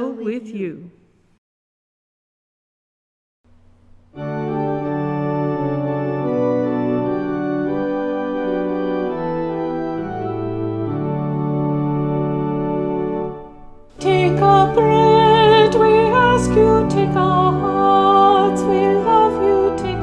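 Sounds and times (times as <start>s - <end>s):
organ playing sustained chords: 3.5s - 20.0s.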